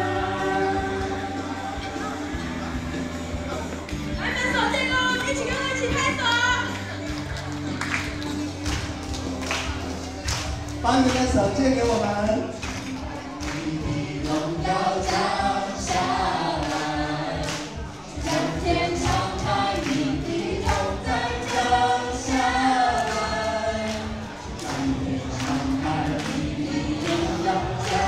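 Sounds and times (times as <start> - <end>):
group singing worship song: 0.0 - 2.5, 13.4 - 28.0
music with steady beat: 0.0 - 28.0.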